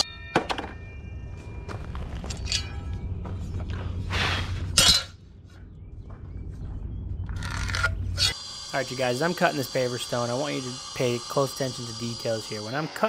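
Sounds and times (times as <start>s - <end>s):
steady low hum: 0.8s - 13.0s
stone pieces clinking and scraping: 2.2s - 2.9s.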